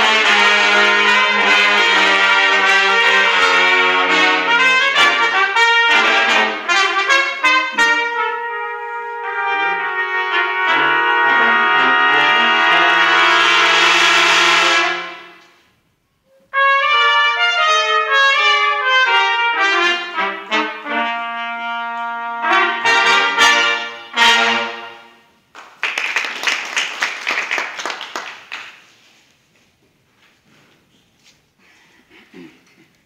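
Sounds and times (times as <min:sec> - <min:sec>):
brass ensemble playing: 0:00.0 - 0:25.5
audience applause: 0:25.6 - 0:28.9.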